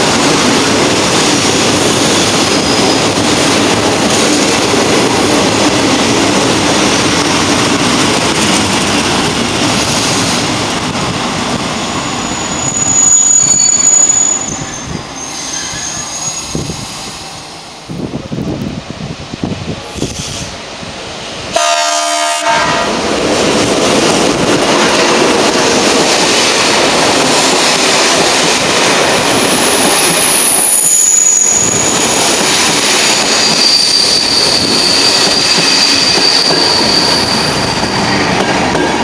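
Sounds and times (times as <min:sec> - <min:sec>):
train wheels rushing on rails: 0:00.0 - 0:39.0
high-pitched wheel squeal: 0:11.8 - 0:16.9, 0:30.3 - 0:32.1, 0:33.2 - 0:38.3
train horn blast: 0:21.6 - 0:23.0.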